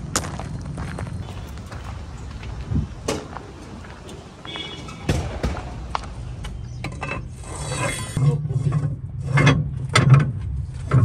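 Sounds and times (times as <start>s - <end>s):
diesel engine humming: 1.2s - 8.2s
sharp metallic clatters: 1.2s - 8.2s.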